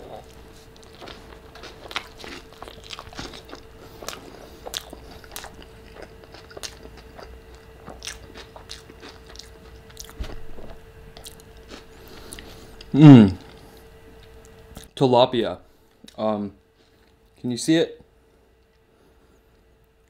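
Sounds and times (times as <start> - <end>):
faint steady hum: 0.0 - 20.0
chewing with wet mouth clicks: 0.1 - 12.9.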